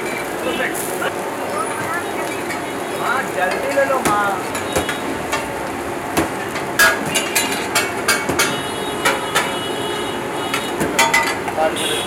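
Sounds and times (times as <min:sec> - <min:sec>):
spatulas clanking on iron griddle: 0:03.4 - 0:09.6, 0:10.5 - 0:11.6.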